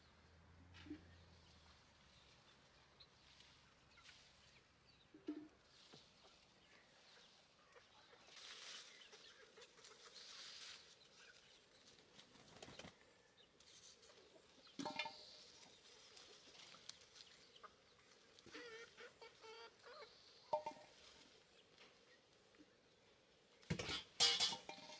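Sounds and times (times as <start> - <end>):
leaves and branches rustling: 5.6 - 19.2.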